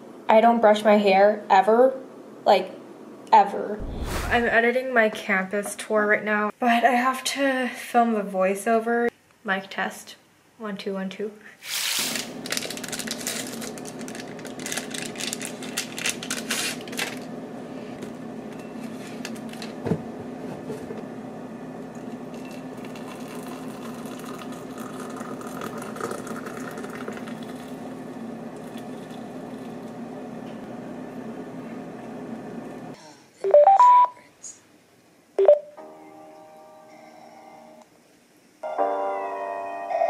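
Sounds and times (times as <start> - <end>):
low mechanical hum: 8.0 - 35.4
water pouring into mug: 22.0 - 28.0, 28.6 - 30.0.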